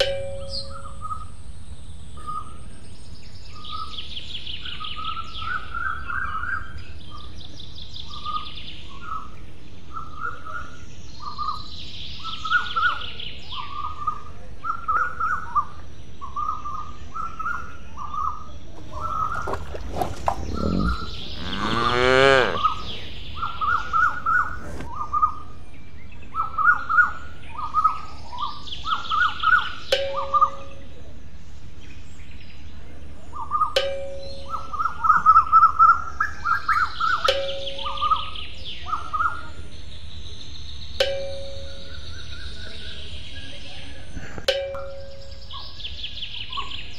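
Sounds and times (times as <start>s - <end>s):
bird trill: 0.0s - 1.3s, 9.9s - 24.5s, 33.4s - 43.4s
birds chirping: 0.4s - 46.9s
cow mooing: 18.8s - 23.1s.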